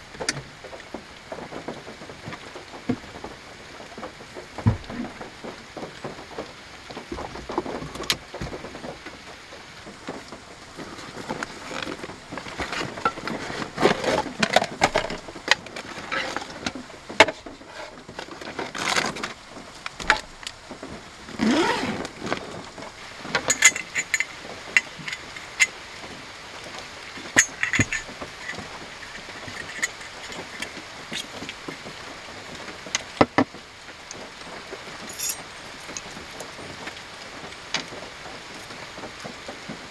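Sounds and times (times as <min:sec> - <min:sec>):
rain hissing on a car: 0:00.0 - 0:39.9
knocks and clicks on wood: 0:04.5 - 0:09.0
small metallic clinks: 0:23.4 - 0:25.8, 0:27.3 - 0:31.3, 0:35.1 - 0:36.2.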